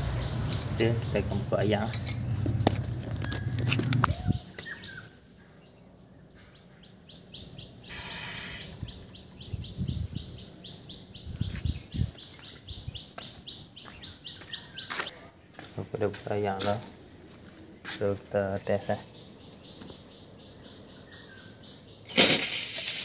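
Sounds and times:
small bird chirping: 0.0 - 2.5, 3.1 - 16.9, 17.9 - 22.2
brief hiss: 7.9 - 8.8.

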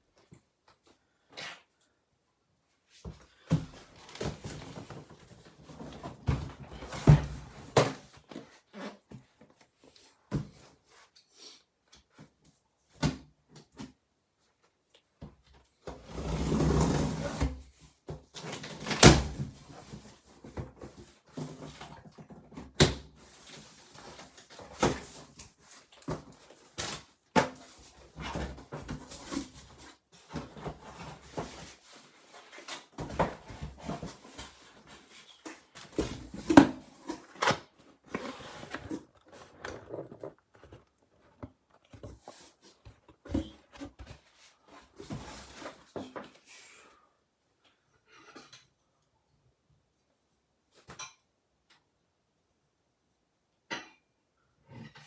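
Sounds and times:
cardboard boxes knocking and thudding: 3.0 - 8.5, 26.1 - 46.3.

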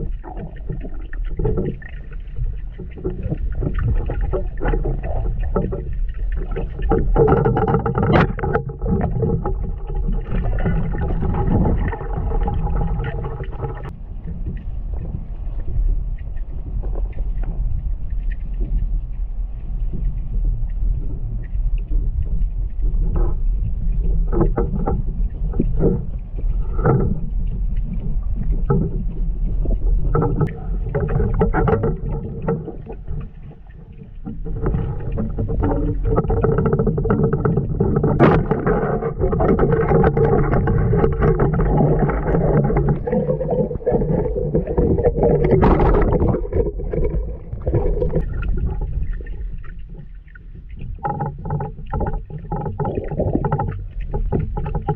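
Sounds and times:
muffled underwater river rumble: 0.0 - 54.9
underwater clicks and knocks: 0.0 - 54.9.

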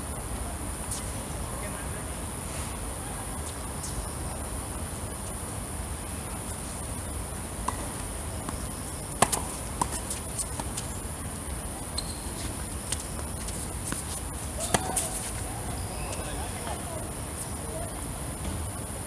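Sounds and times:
insects chirring: 3.4 - 19.0
tennis ball struck and bouncing: 8.5 - 10.7.

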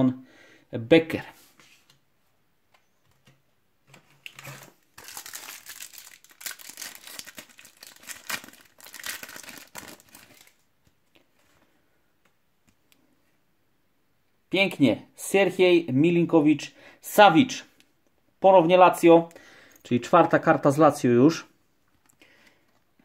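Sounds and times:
card pack wrapper crinkling and tearing: 4.2 - 10.7.

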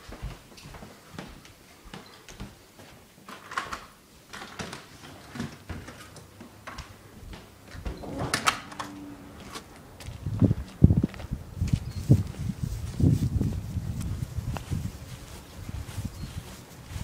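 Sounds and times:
footsteps: 0.0 - 3.3, 4.9 - 17.0
storm door swinging shut: 7.7 - 9.7.

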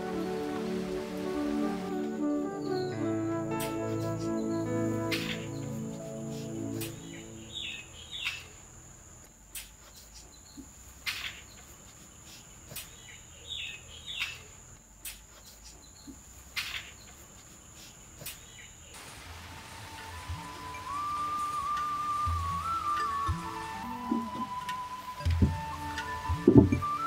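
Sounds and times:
background music: 0.0 - 8.2, 19.2 - 27.0
bird chirps: 2.4 - 8.6
high insect drone: 3.2 - 8.3.

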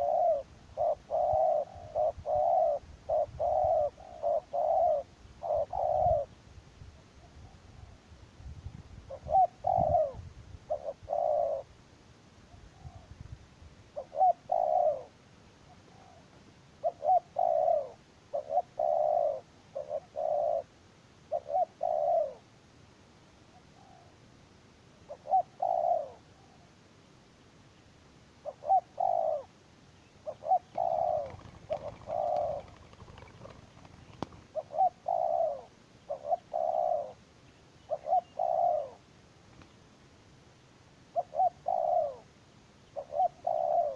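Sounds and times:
dove cooing: 0.0 - 6.4, 9.1 - 11.7, 14.0 - 20.7, 21.3 - 22.5, 23.5 - 24.2, 25.1 - 26.7, 28.4 - 29.6, 30.2 - 37.2, 37.8 - 39.1, 41.1 - 43.9.

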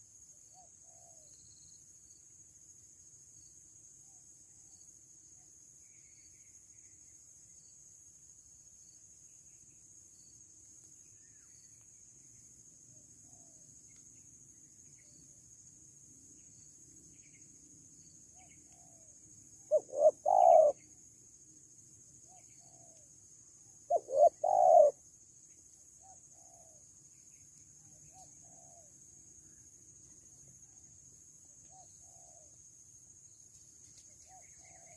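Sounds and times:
dove cooing: 19.7 - 20.8, 23.9 - 25.0.

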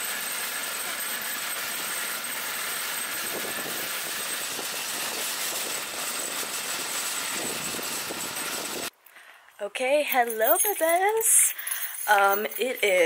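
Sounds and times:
shopping cart rattling on asphalt: 3.0 - 8.9, 10.4 - 13.0.

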